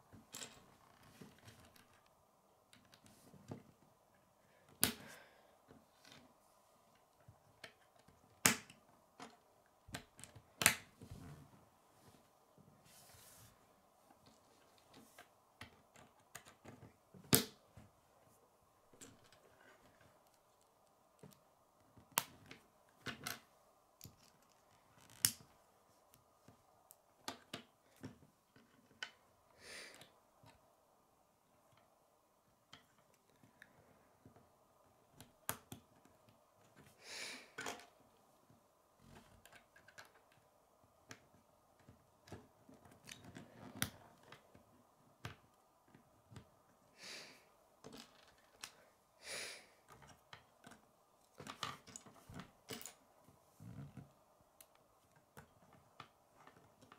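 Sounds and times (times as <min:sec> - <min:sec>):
soft rustling scrapes: 0:11.0 - 0:15.2.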